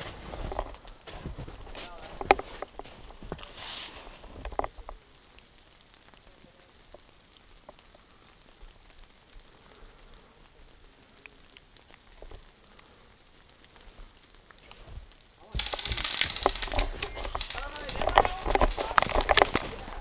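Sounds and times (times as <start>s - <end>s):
brushing past branches: 0.0s - 4.5s, 14.6s - 20.0s
footsteps crackling in snow: 0.0s - 4.9s, 13.6s - 20.0s.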